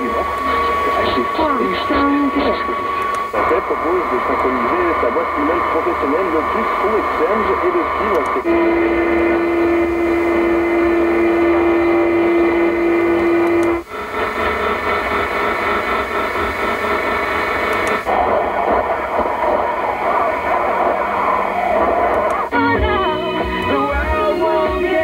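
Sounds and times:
radio static and interference: 0.0s - 25.0s
radio heterodyne whistle: 18.0s - 25.0s.

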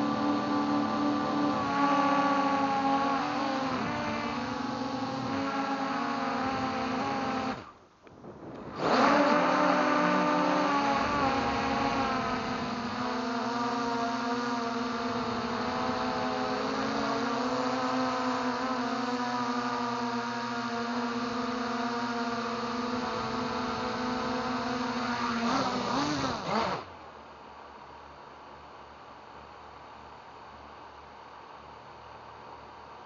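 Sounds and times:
propeller motor buzzing whine: 0.0s - 27.0s
faint hiss: 7.5s - 8.9s.

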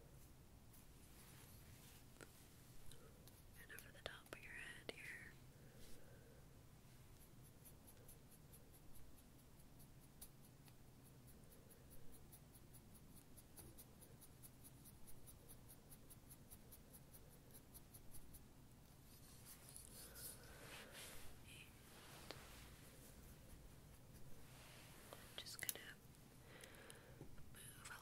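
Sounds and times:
soft rubbing strokes: 0.0s - 3.6s, 5.6s - 6.1s, 6.8s - 26.4s.

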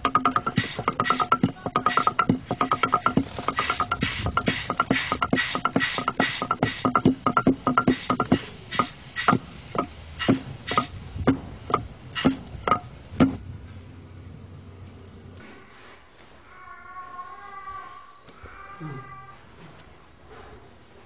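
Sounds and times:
percussion drum beat: 0.0s - 13.4s.

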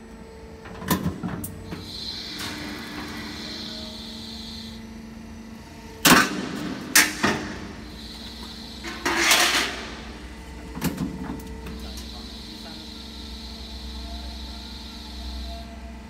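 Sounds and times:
roll forming machine motor hum: 0.0s - 16.0s
press striking with metal clanks: 6.0s - 7.7s.

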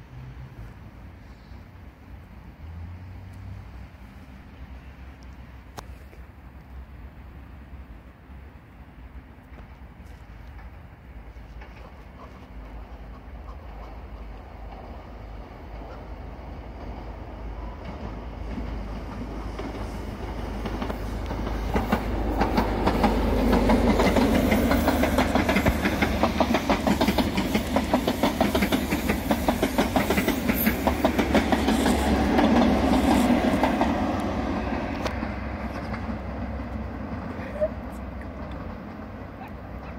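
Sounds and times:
train passing at speed: 0.0s - 39.9s
wheels clicking over rail joints: 9.4s - 39.9s.

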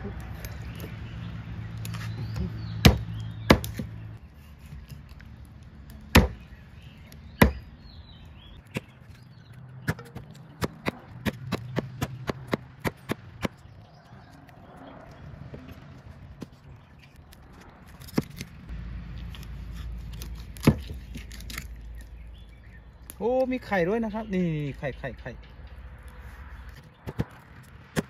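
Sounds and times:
knife chopping fish on wood: 6.1s - 6.4s.

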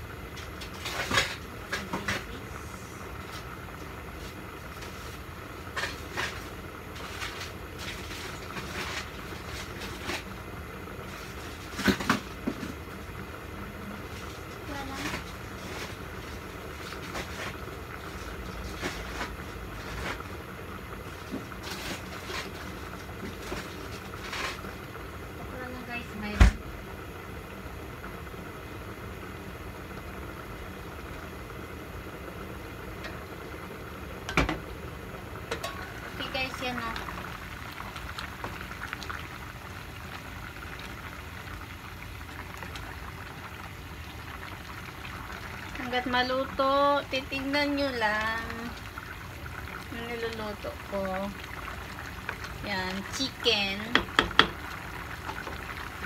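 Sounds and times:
gas burner rumbling: 0.0s - 56.0s
metal lid clank: 35.5s - 35.9s.

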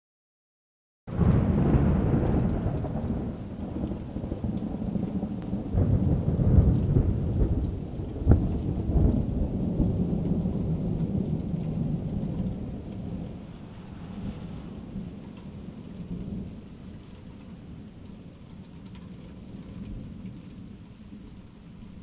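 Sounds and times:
sharp thunder crack: 1.1s - 3.9s, 5.8s - 10.1s, 13.6s - 15.3s
thunder rumbling: 1.1s - 18.3s
steady rain: 1.1s - 22.0s.

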